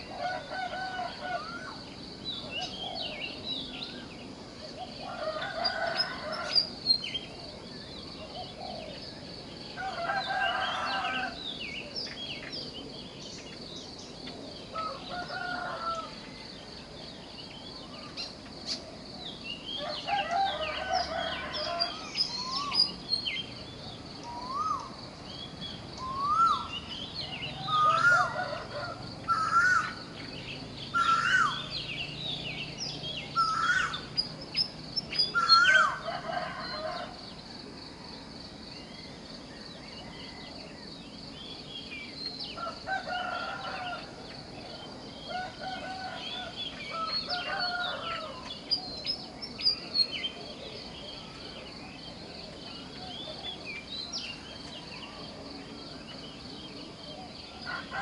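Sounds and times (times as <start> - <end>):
birds chirping: 0.0 - 37.2
chickens crowing: 14.8 - 16.2, 27.5 - 30.0, 30.9 - 31.7, 35.4 - 37.2, 42.6 - 44.3, 45.3 - 48.5.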